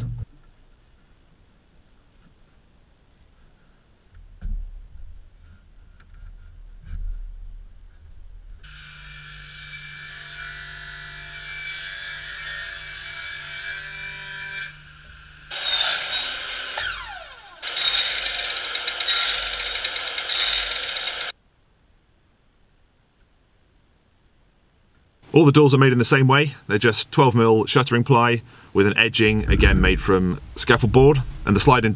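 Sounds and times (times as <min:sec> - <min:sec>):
mitre saw cutting: 0:08.7 - 0:21.3
table saw running: 0:08.7 - 0:21.3.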